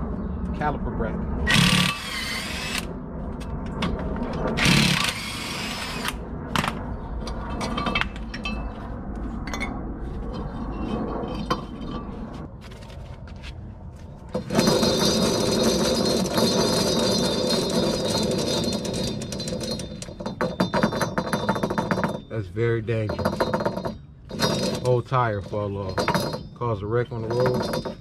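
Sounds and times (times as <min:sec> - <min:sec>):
steady sound with high ringing tone: 0:00.0 - 0:12.5
cordless power tool bursts: 0:01.5 - 0:02.9, 0:04.6 - 0:06.2.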